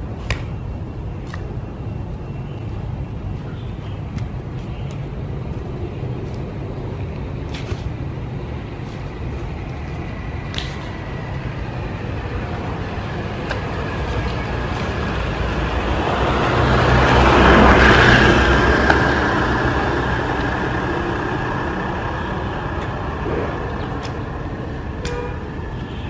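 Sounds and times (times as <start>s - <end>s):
steady traffic noise: 0.0s - 26.0s
vehicle passing by: 8.5s - 25.7s.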